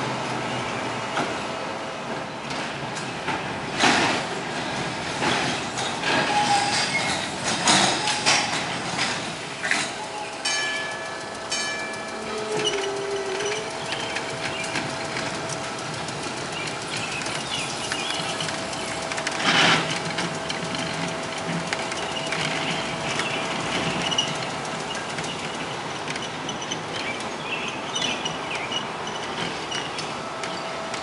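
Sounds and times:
streetcar rolling on track: 0.0 - 31.0
streetcar whine: 0.0 - 31.0
birds chirping: 11.8 - 19.0.

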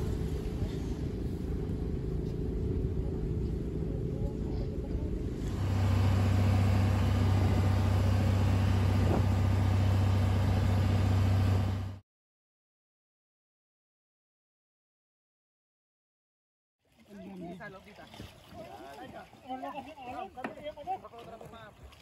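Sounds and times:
light surf: 0.0 - 11.7
boat engine droning: 0.0 - 12.0
wind: 0.0 - 12.0, 16.8 - 22.0.

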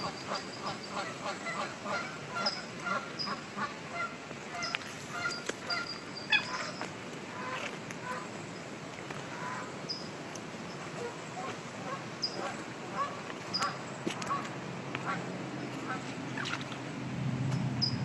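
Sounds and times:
chorus frogs calling: 0.0 - 16.8
high beeping frog calls: 4.6 - 8.2.

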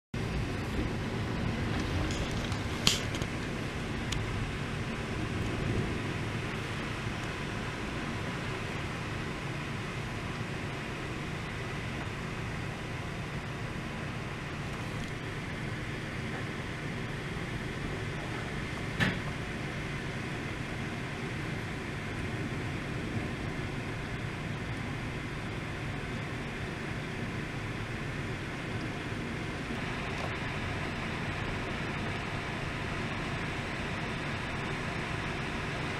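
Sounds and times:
faint steady hum: 0.2 - 35.9
storm wind rushing through trees: 0.2 - 35.9.

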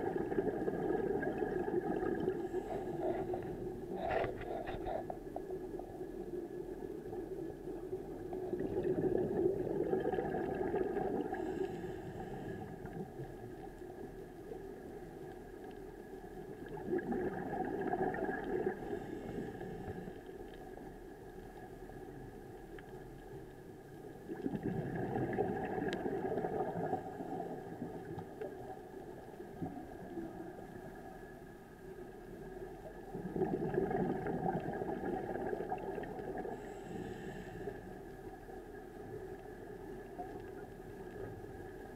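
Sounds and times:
bubbling exhaled air underwater: 0.0 - 5.8, 7.0 - 13.5, 16.4 - 20.3, 24.2 - 31.2, 32.8 - 37.7.

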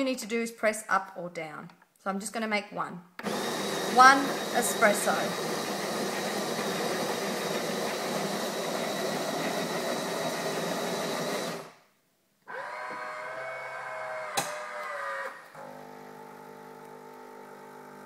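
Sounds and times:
coffee grinder whirring: 3.2 - 11.8, 12.5 - 18.0.

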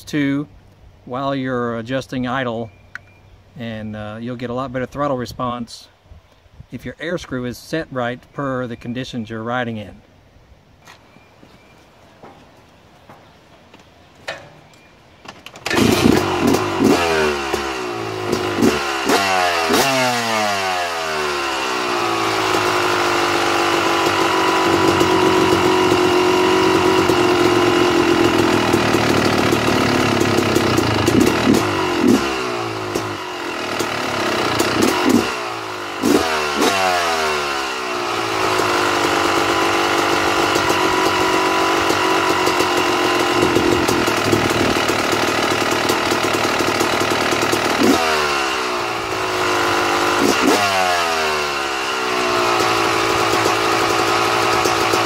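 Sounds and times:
dirt bike engine revving: 15.6 - 55.0.

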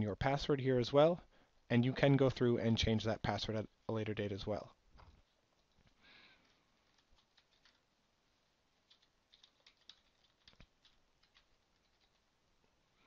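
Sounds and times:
keyboard keystrokes typing: 7.2 - 7.8, 8.9 - 12.3.

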